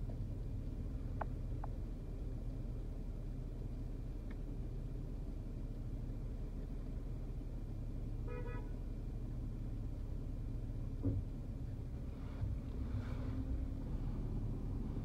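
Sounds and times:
car engine rumble: 0.0 - 15.0
car horn beep: 8.2 - 8.8.

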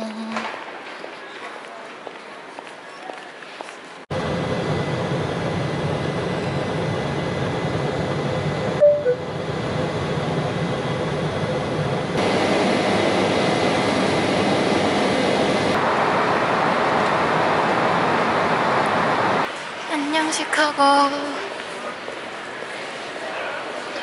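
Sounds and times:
jet engines and airflow rushing: 4.1 - 19.8.

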